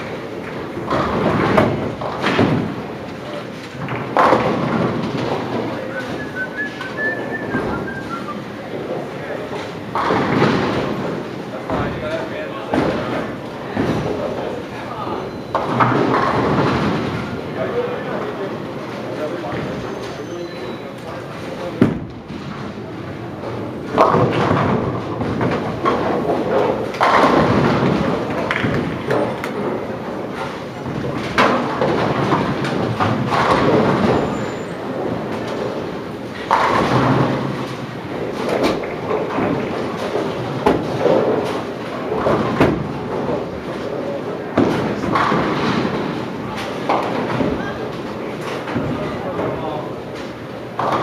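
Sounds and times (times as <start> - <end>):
bowling balls and pins clattering: 0.0 - 51.0
bowling ball rolling: 0.1 - 11.8.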